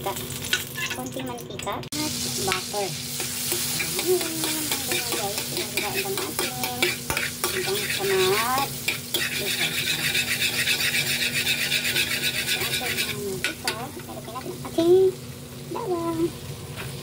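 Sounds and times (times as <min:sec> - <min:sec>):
oil sizzling in a wok: 0:00.0 - 0:17.0
metal spoon scraping a wok: 0:02.5 - 0:14.1.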